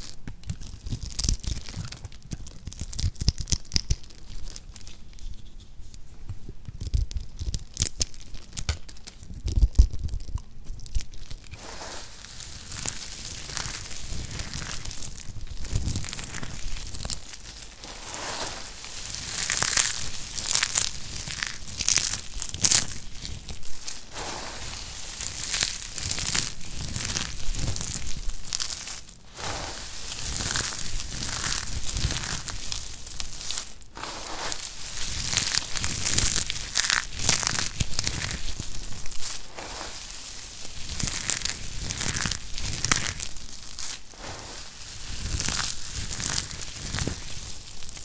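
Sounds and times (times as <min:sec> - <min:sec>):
soap cubes crunching: 0:12.3 - 0:44.2.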